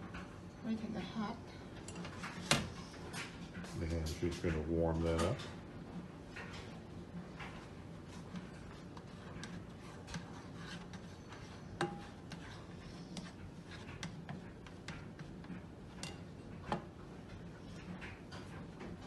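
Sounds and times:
spatula scraping frying pan: 8.1s - 16.5s.

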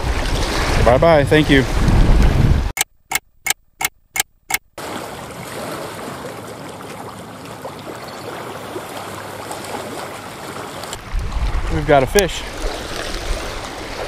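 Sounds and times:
choppy lake water: 0.0s - 2.7s, 4.8s - 14.0s
steady wind: 0.0s - 6.2s, 9.8s - 14.0s.

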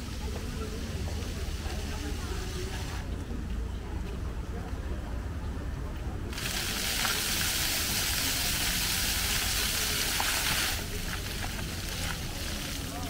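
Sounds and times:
fountain water jets spraying: 0.0s - 3.1s, 6.3s - 13.0s.

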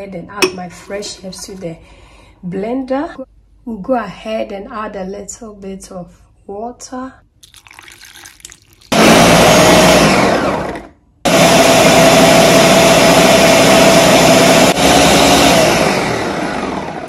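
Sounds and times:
blender motor whining: 8.9s - 17.0s.

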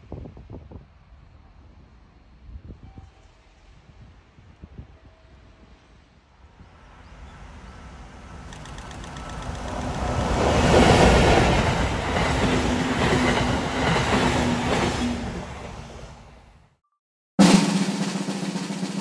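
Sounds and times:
train passing with clattering wheels: 4.9s - 16.6s.

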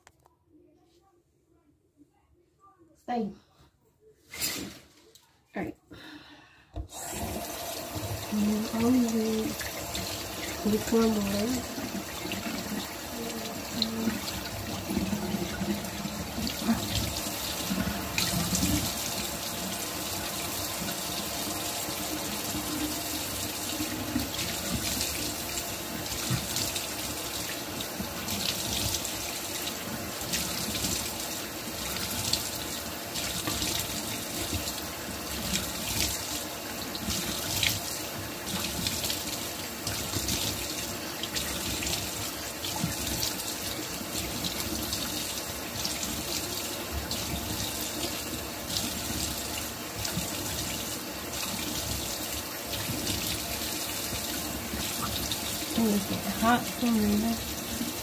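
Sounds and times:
tap running into sink: 26.0s - 29.2s.

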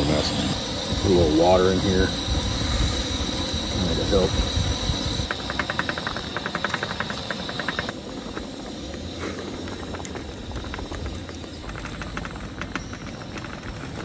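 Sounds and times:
camp stove burning: 0.0s - 14.0s
rapid even ticking: 5.2s - 8.0s.

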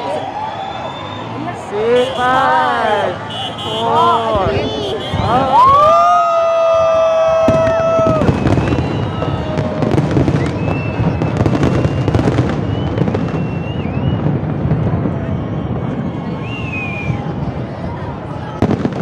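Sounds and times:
fireworks bursting: 0.4s - 17.5s
person whooping: 5.1s - 9.9s.

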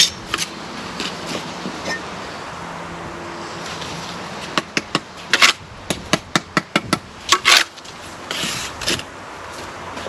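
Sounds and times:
trowel scraping brick and mortar: 5.3s - 5.6s, 7.3s - 9.1s.

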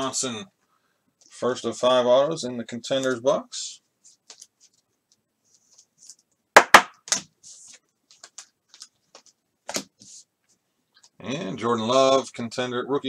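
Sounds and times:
cards clicking and rustling: 7.1s - 10.1s.

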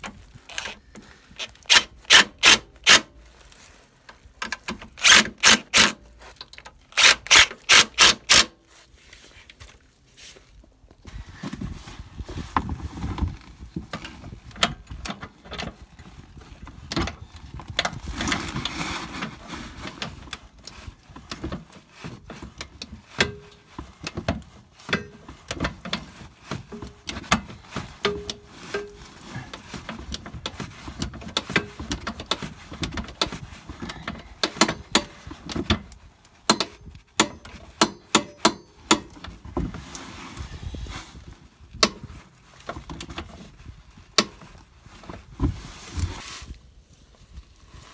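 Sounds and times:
ratchet wrench clicking: 5.0s - 6.0s.

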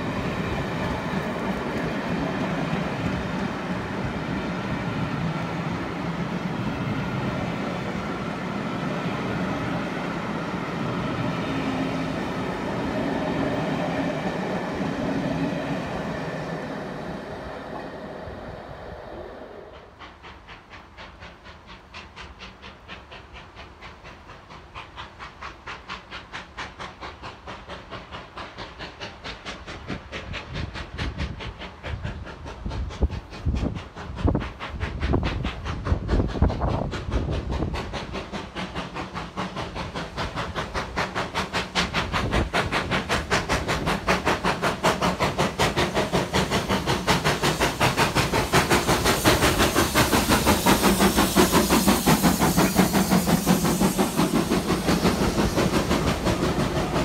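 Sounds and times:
steam locomotive chuffing: 0.0s - 57.0s
train wheels clattering over rail joints: 19.8s - 57.0s.

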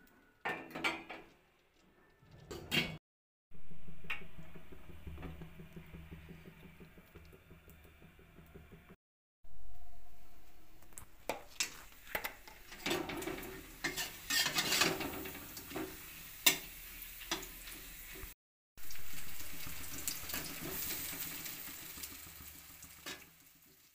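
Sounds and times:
food sizzling in hot oil: 9.6s - 23.9s
metal spatula scraping pan: 10.4s - 16.7s.

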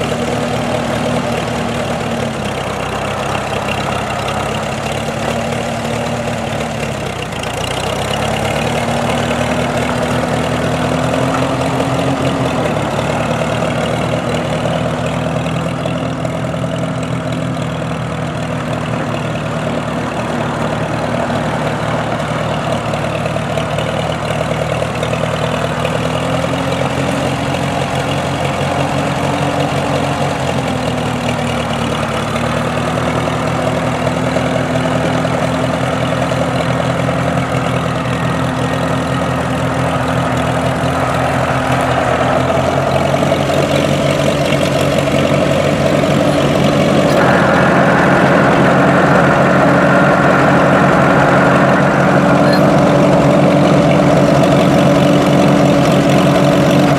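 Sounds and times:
tractor engine running: 0.0s - 56.9s.

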